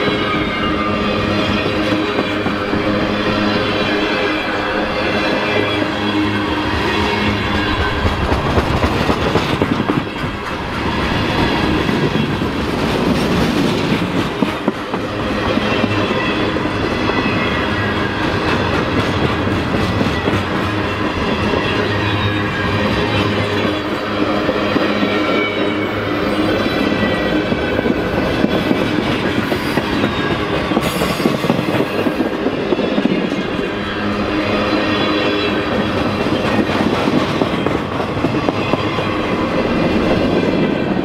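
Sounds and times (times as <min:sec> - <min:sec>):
train wheels rumbling on rails: 0:00.0 - 0:41.0
steady tones: 0:00.4 - 0:12.7
clickety-clack over rail joints: 0:07.4 - 0:41.0.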